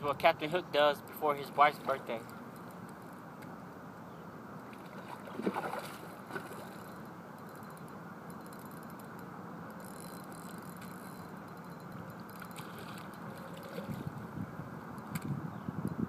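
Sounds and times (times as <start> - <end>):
wind buffeting microphone: 12.8 - 16.0.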